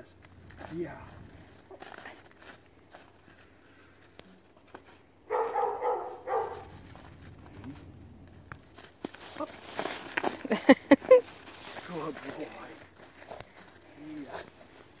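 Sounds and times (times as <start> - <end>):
dog barking: 5.3 - 6.8.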